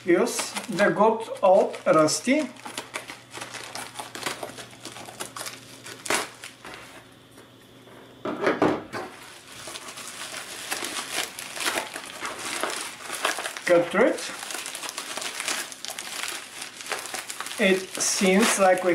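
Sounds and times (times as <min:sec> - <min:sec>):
plastic mailer crinkling: 0:00.0 - 0:06.9, 0:09.2 - 0:18.9.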